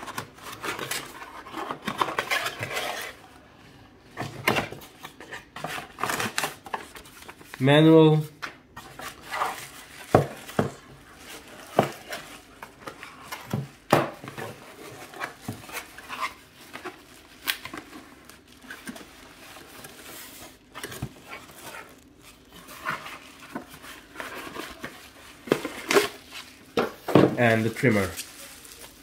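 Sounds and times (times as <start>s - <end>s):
packaging rustling and scraping: 0.0s - 29.0s
items knocking when set down: 26.8s - 27.7s.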